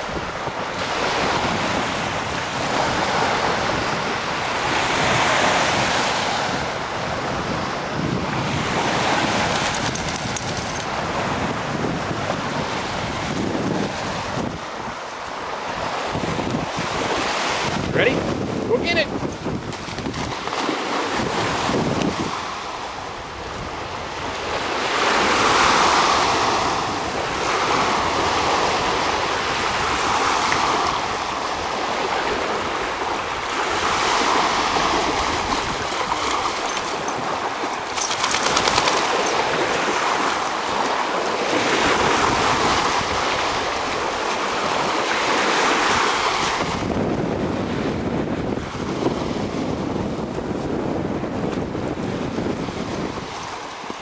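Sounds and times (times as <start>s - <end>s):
waves washing onto shore: 0.0s - 54.0s
wind buffeting microphone: 0.0s - 54.0s.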